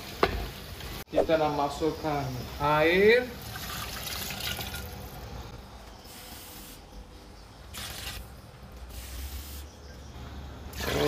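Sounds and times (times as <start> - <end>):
water trickling into a pot: 3.4 - 5.1.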